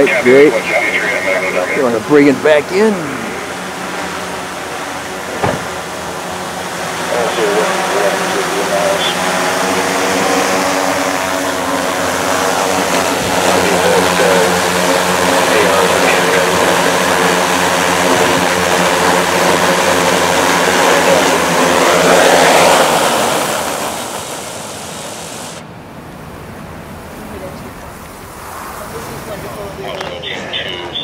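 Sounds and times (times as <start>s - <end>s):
drone propellers whirring: 0.0s - 31.0s.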